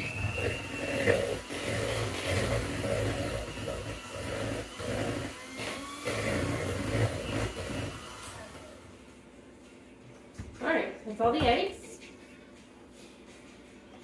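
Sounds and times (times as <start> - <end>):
electric hand mixer whirring: 0.0 - 9.1.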